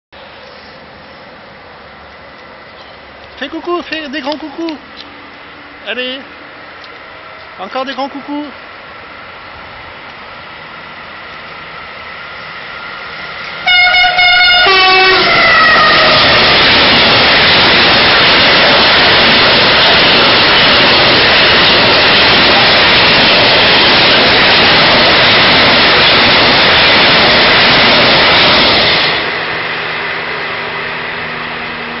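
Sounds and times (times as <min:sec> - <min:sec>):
train wheels rumbling on rail: 0:00.2 - 0:32.0
train horn blasts: 0:13.6 - 0:16.3.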